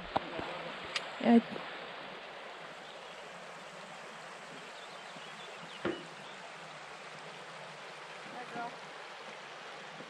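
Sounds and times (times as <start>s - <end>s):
stream flowing over stones: 0.0s - 10.0s
sharp knock: 5.8s - 6.1s.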